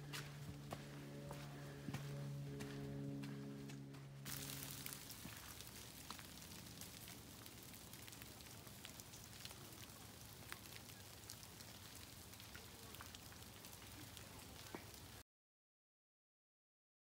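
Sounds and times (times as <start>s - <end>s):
light ticks and patter: 2.0s - 15.2s.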